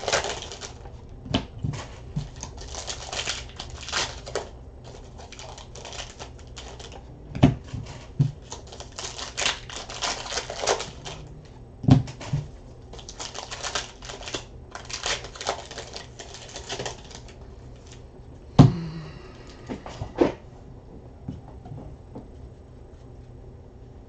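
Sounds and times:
cards clicking and rustling: 0.0s - 18.0s.

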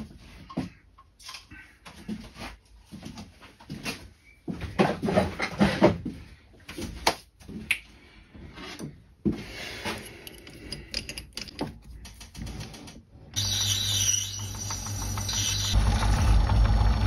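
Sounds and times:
hard objects clicking and scraping: 9.8s - 13.0s.

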